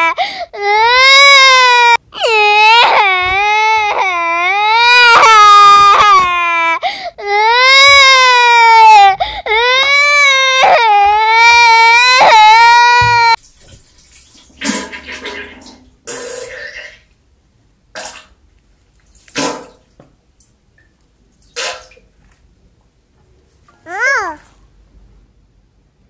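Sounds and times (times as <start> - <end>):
baby crying: 0.0 - 13.4, 23.9 - 24.5.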